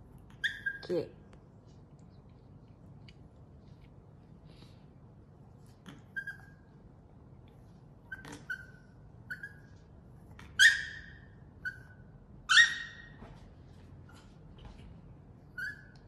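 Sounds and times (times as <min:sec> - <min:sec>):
dog yipping: 0:00.3 - 0:01.0, 0:05.9 - 0:06.8, 0:08.0 - 0:13.2, 0:15.4 - 0:16.0.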